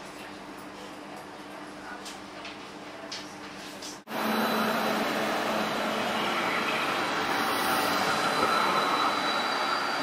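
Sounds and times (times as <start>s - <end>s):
electric tram rolling: 4.1s - 10.0s.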